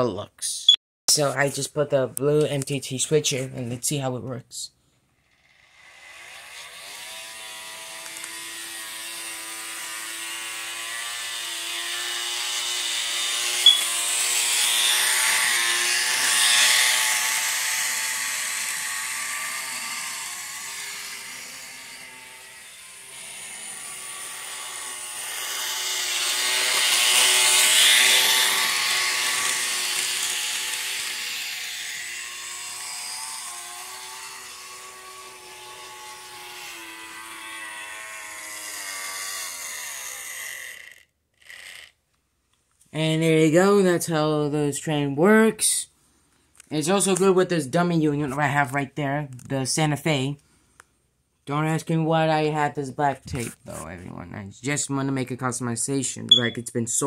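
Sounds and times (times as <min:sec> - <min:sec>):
model train motor whining: 0:05.1 - 0:42.2.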